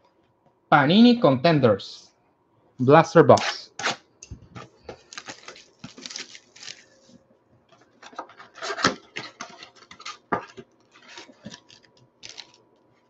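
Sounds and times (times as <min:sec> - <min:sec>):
plastic wrapper crinkling: 0:04.9 - 0:13.0
cardboard scraping and tearing: 0:08.2 - 0:12.6.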